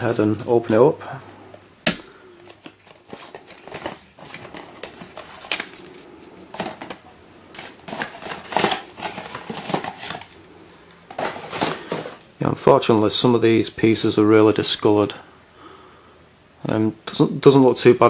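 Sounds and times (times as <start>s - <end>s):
paper sheet rustling: 2.4s - 6.9s, 7.5s - 10.4s
scissors cutting packaging: 7.6s - 10.3s.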